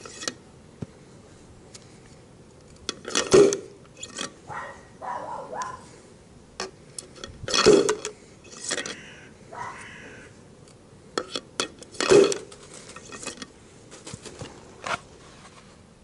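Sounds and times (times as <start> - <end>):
metal clinks and clunks: 7.0 - 9.0.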